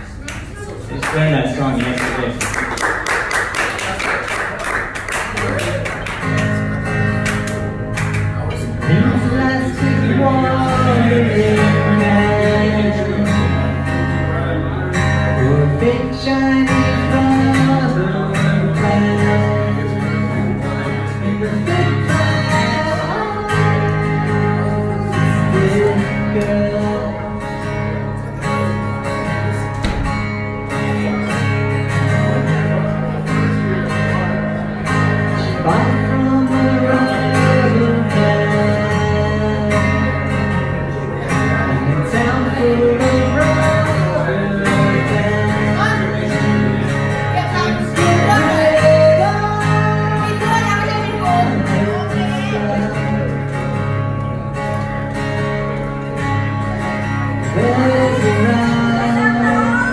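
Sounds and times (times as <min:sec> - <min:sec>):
acoustic guitar strumming: 0:04.8 - 0:59.9
man singing: 0:08.7 - 0:29.9, 0:34.8 - 0:53.8, 0:57.1 - 0:59.9.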